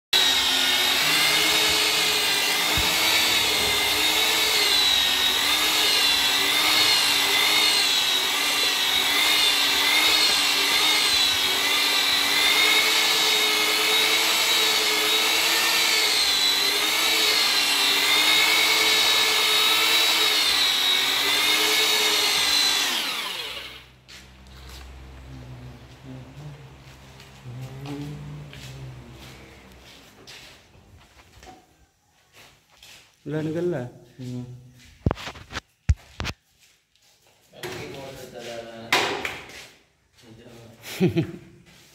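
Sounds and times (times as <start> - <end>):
mixer churning thick putty: 0.2 - 23.8
electric paddle mixer whining: 0.2 - 26.5.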